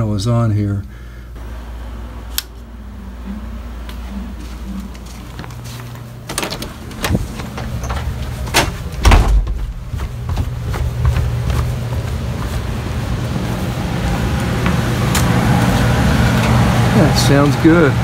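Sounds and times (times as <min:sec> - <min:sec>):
furnace blower fan hum: 0:00.0 - 0:18.0
footsteps: 0:03.0 - 0:16.5
door being handled: 0:06.2 - 0:10.5
heavy thump: 0:08.5 - 0:10.6.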